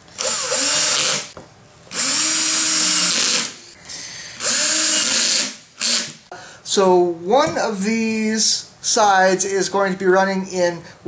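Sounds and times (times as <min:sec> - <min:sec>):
cordless drill driving screws: 0:00.2 - 0:03.6, 0:04.4 - 0:06.2.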